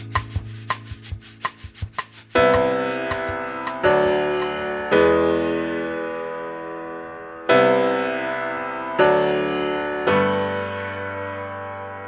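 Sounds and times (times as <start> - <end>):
slow piano chords: 2.4 - 12.0.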